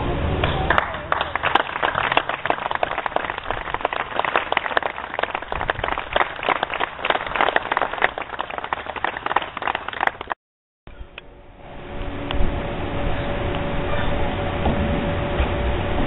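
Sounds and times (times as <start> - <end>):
crowd applauding: 0.4 - 10.4.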